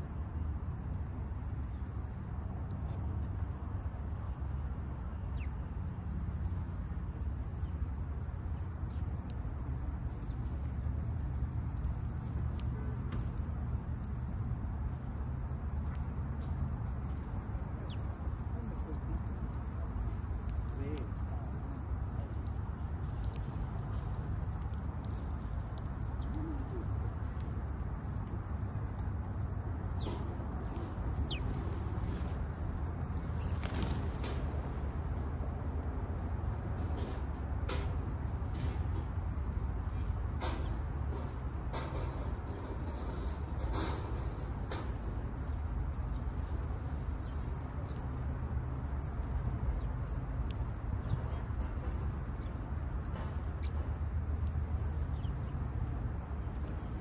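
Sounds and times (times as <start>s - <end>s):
insects droning: 0.0s - 57.0s
sparrows chirping: 5.1s - 6.0s, 15.9s - 35.2s, 45.4s - 50.3s, 50.9s - 52.6s, 53.4s - 57.0s
bird chirps: 31.2s - 32.3s.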